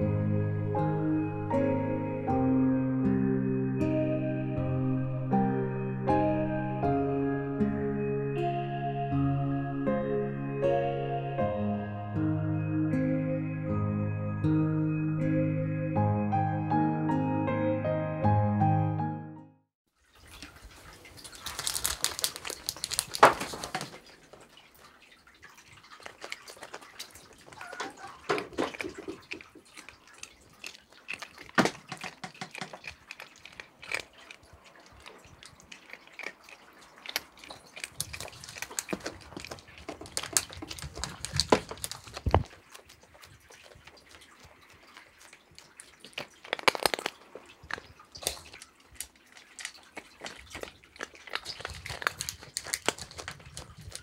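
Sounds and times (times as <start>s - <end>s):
rustling: 20.2s - 25.0s, 25.8s - 54.0s
cat crunching treats: 20.9s - 24.6s, 25.4s - 54.0s.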